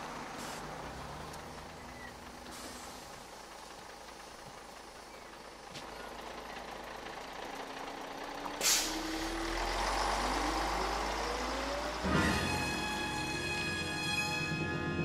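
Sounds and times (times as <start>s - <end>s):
bus engine running: 0.0s - 15.0s
air brakes hissing: 0.3s - 0.8s, 2.4s - 3.2s, 8.6s - 9.4s
engine whine accelerating: 6.8s - 15.0s.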